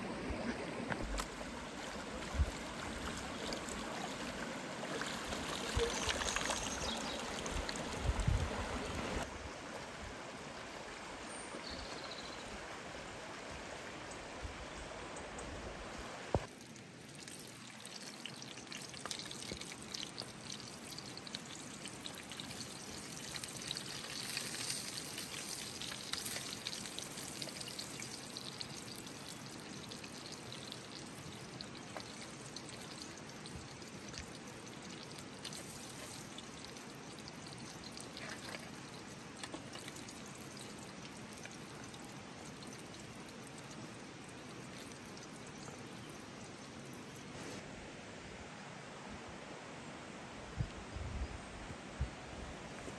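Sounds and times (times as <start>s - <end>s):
river flowing: 0.0s - 11.6s
water pouring and splashing: 0.3s - 9.3s, 16.3s - 47.3s
fish sizzling in a pan: 17.8s - 30.9s, 35.5s - 36.8s.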